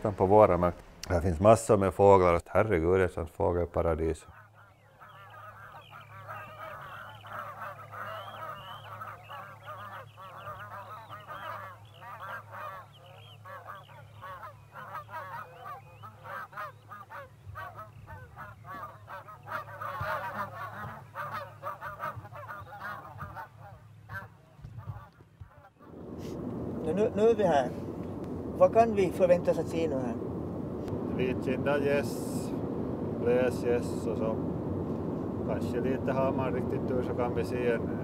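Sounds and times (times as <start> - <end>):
steady low hum: 0.0 - 2.3, 25.8 - 38.0
geese honking: 4.4 - 38.0.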